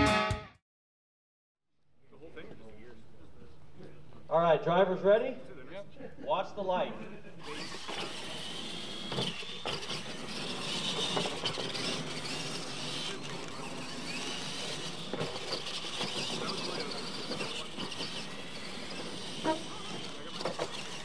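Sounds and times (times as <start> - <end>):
rc truck motors whining: 7.0 - 21.0.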